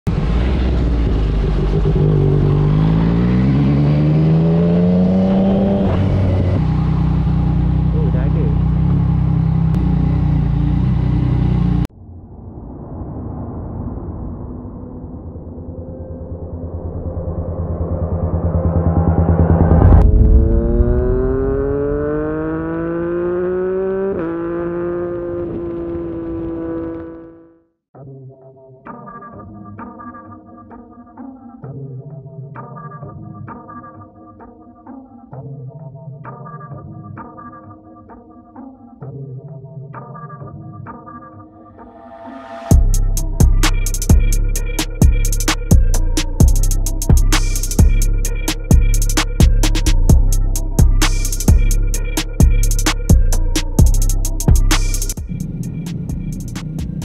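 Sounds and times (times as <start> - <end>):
motorcycle engine accelerating: 0.1 - 11.9, 16.4 - 27.6, 42.7 - 57.0.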